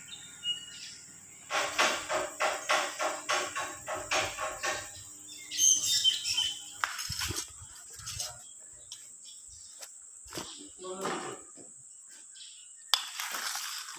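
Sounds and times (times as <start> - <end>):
high bird chirps: 0.0 - 9.8
bird calls: 0.0 - 13.9.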